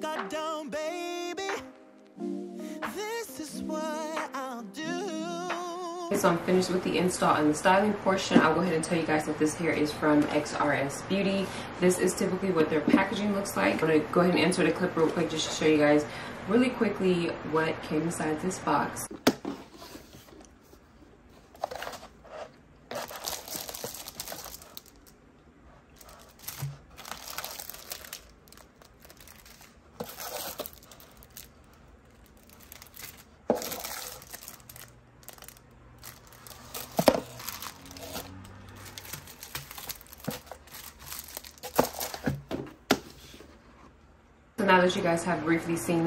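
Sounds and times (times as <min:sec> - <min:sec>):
plastic packaging crinkling: 0:21.4 - 0:25.2, 0:25.9 - 0:42.6.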